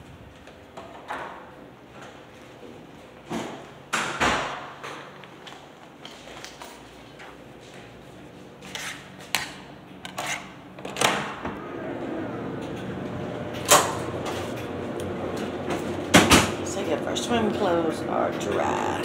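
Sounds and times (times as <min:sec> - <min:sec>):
low machine hum: 0:06.9 - 0:19.0.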